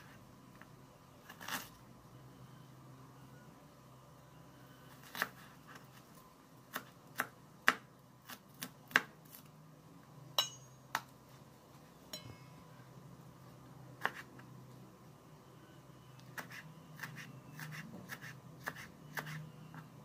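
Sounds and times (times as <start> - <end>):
knife chopping on cutting board: 14.0 - 14.3, 16.4 - 19.4.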